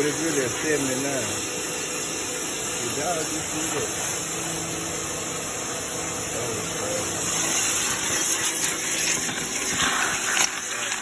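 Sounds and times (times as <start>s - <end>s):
pressure washer spraying water: 6.8s - 11.0s.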